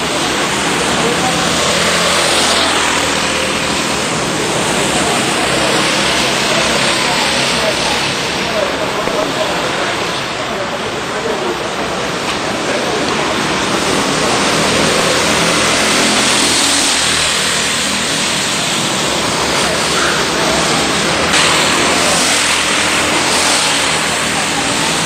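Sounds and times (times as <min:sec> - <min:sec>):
kart engines passing: 0:00.0 - 0:25.0
loud rush of noise: 0:00.0 - 0:25.0.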